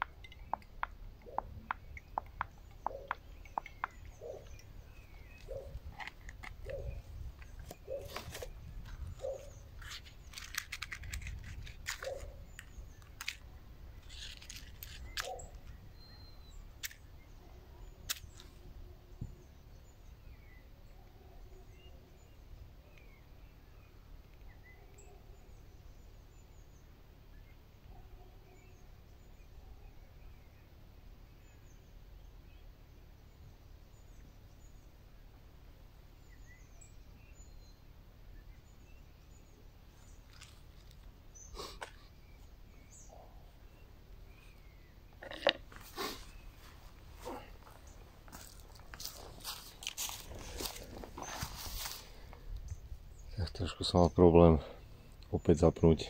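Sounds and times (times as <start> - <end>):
handling clicks and knocks: 0.0 - 15.8, 45.1 - 46.0
birds chirping: 0.0 - 56.0.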